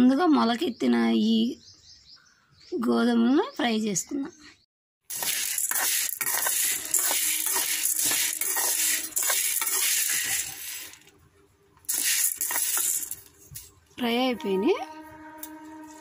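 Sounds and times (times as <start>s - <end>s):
grains rattling in a metal pan: 5.1s - 11.1s, 11.9s - 13.4s.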